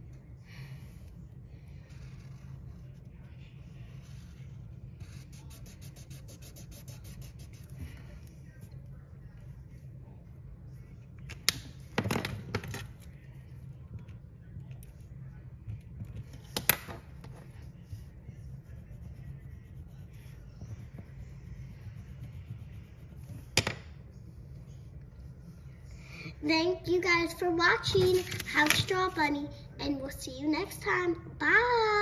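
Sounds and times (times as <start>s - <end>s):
steady low hum: 0.0s - 32.0s
marker strokes on paper: 1.6s - 8.8s, 17.4s - 23.6s.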